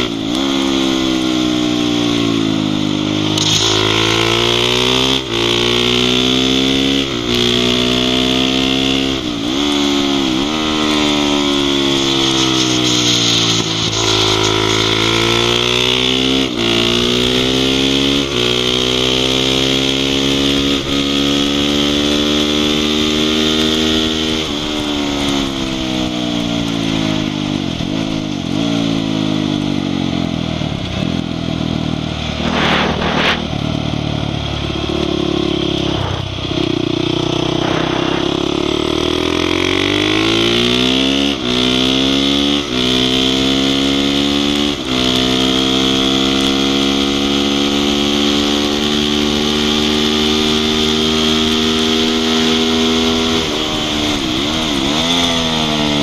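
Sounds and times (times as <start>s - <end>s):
motorcycle engine revving: 0.0s - 56.0s
steady hiss: 12.0s - 15.0s.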